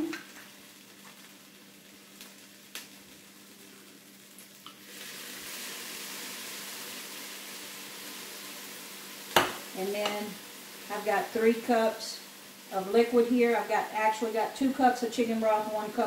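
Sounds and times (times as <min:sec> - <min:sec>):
food sizzling in a pot: 0:00.0 - 0:16.0.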